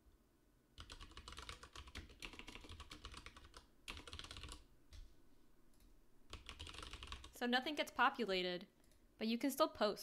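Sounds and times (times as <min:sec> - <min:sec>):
keyboard typing: 0:00.8 - 0:05.0, 0:05.7 - 0:07.4.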